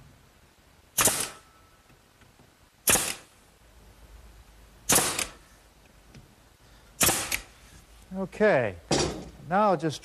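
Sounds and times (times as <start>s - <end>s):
nail gun firing into wood: 1.0s - 1.4s, 2.8s - 3.3s, 4.9s - 5.4s, 7.0s - 7.5s.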